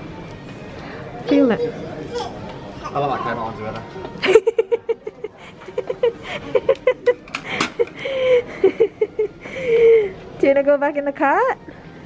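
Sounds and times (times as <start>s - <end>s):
toddler babbling: 1.3s - 3.2s.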